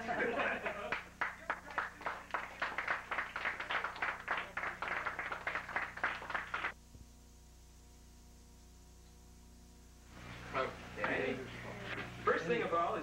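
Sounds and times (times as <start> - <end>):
audience clapping: 0.0 - 6.8, 11.0 - 11.2
electrical hum and hiss: 0.0 - 13.0.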